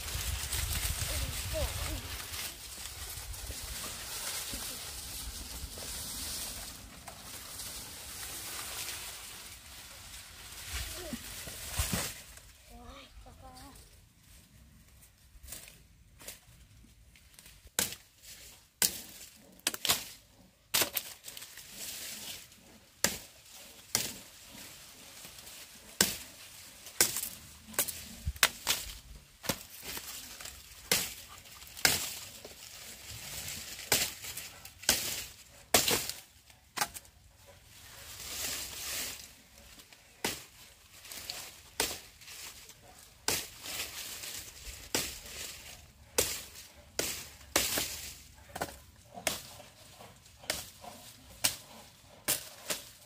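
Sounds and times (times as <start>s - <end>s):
rustling: 0.0s - 53.0s
blade chopping sugarcane: 17.7s - 18.2s, 18.8s - 24.6s, 25.9s - 26.3s, 27.0s - 32.6s, 33.7s - 37.1s, 40.2s - 53.0s.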